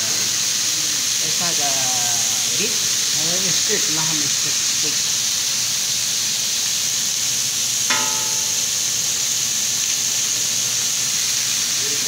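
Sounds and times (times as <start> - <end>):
meat sizzling on a grill: 0.0 - 12.0
sharp ringing note: 7.9 - 9.3.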